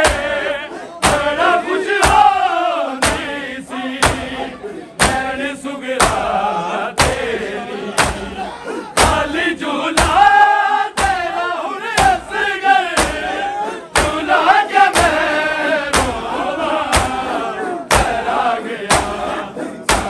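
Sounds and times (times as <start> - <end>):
chest-beating slaps: 0.0 - 2.4, 3.0 - 5.4, 6.0 - 6.4, 7.0 - 11.4, 12.0 - 20.0
men chanting in unison: 0.0 - 20.0.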